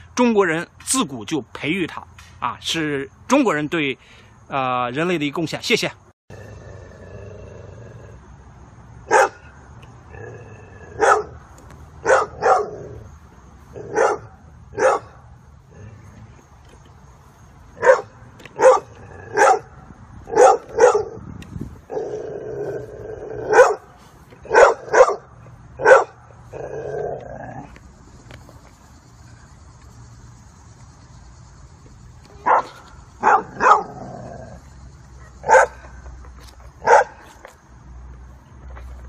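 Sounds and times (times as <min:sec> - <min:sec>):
dog barking: 0:09.1 - 0:09.4, 0:11.0 - 0:11.4, 0:12.0 - 0:12.8, 0:13.8 - 0:15.2, 0:17.8 - 0:19.7, 0:20.3 - 0:21.2, 0:23.5 - 0:23.9, 0:24.5 - 0:26.2, 0:32.4 - 0:34.0, 0:35.2 - 0:35.8, 0:36.8 - 0:37.2.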